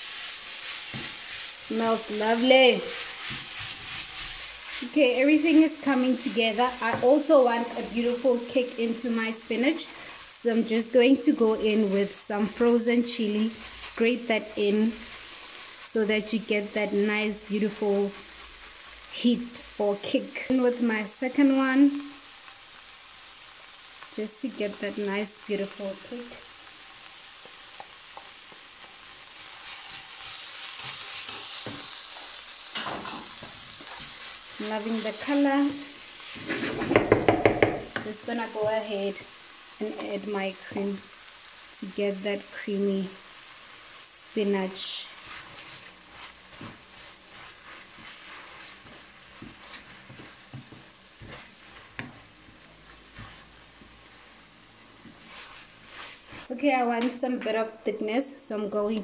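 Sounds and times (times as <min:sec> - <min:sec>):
vegetables sizzling in a pan: 0:00.0 - 0:59.0
wooden spoon stirring: 0:00.5 - 0:07.7, 0:45.1 - 0:56.6
spoon scraping and tapping pan: 0:36.4 - 0:38.1.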